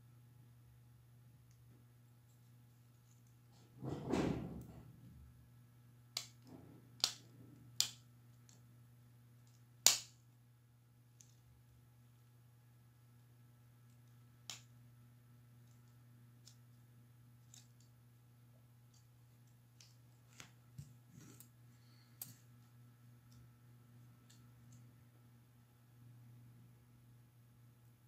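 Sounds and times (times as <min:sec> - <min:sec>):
low steady hum: 0:00.0 - 0:28.0
small laptop parts clicking: 0:06.2 - 0:08.6, 0:17.4 - 0:18.0.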